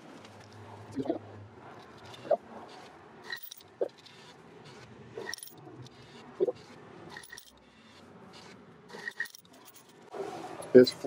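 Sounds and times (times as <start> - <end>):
coins clinking: 1.8 - 4.3, 5.2 - 8.0, 8.9 - 10.1.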